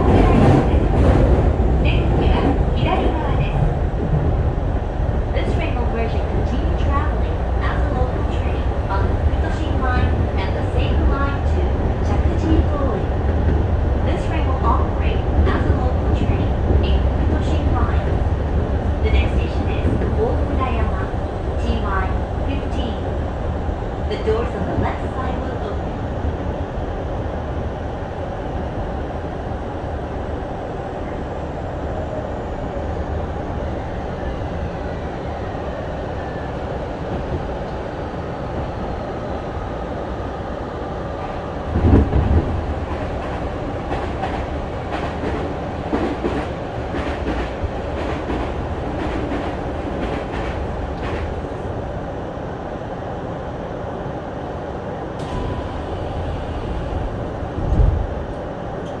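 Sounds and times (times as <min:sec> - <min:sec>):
passing train rush: 0:00.0 - 0:59.0
train stopping thump: 0:55.2 - 0:58.1.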